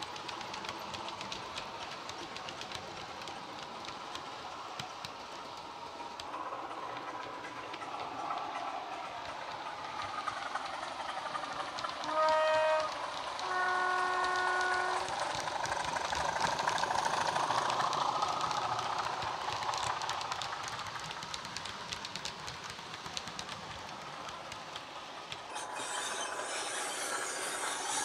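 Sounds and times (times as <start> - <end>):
wheels clicking on track: 0.0 - 28.0
two-tone horn: 12.1 - 15.0.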